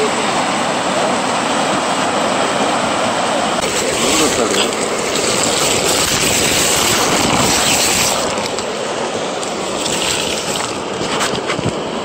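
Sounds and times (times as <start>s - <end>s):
water rushing through culvert: 0.0s - 12.0s.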